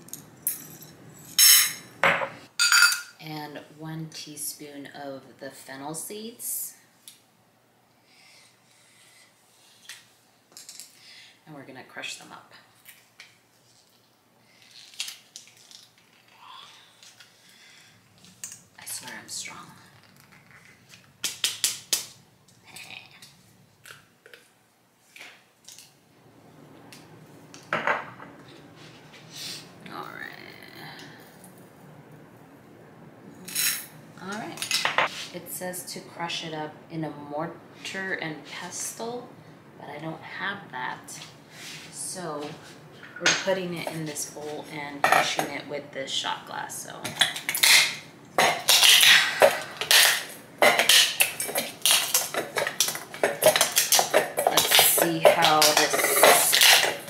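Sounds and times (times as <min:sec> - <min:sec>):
glass grinding seeds in metal bowl: 0:50.8 - 0:57.0.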